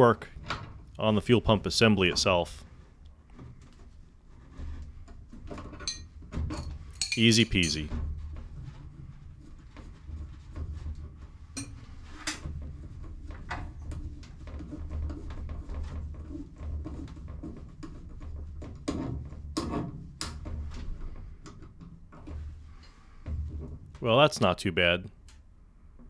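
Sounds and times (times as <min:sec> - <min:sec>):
metal wrenches clicking and knocking: 0:05.7 - 0:07.9.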